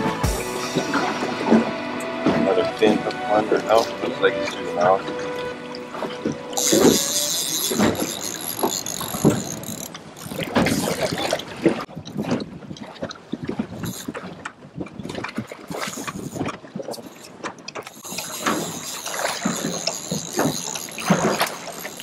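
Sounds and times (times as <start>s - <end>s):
water lapping against boat hull: 0.9s - 22.0s
wind on microphone: 6.2s - 17.2s.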